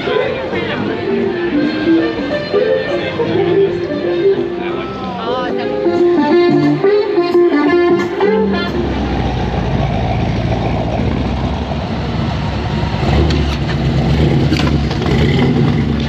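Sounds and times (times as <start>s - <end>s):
music track: 0.0s - 9.6s
car engine rumbling: 8.0s - 16.0s.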